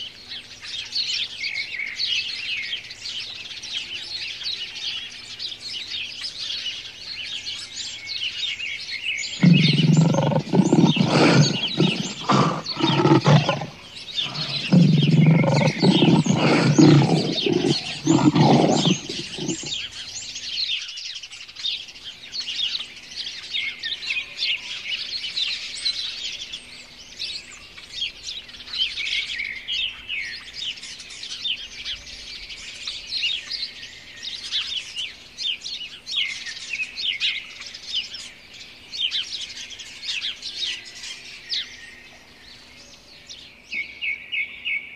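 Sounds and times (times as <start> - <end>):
birds chirping: 9.2 - 20.3
lion roaring: 9.4 - 19.7.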